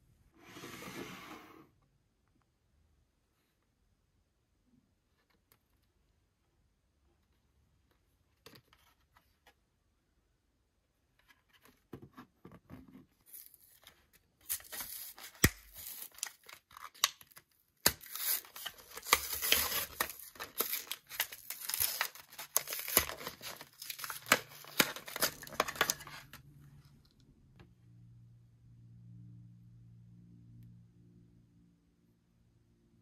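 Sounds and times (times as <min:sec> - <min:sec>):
packaging tearing and crinkling: 0:14.4 - 0:26.4.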